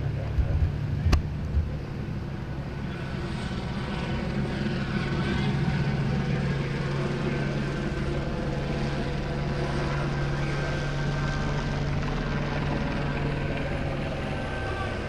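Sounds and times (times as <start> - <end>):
helicopter hovering: 0.0 - 15.0.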